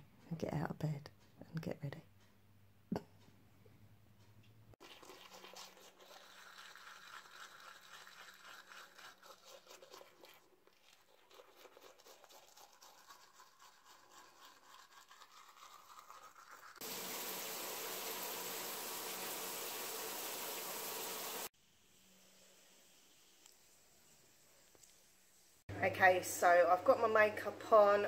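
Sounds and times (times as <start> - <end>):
toothbrush brushing teeth: 4.8 - 16.8
shower head spraying water: 16.8 - 21.5.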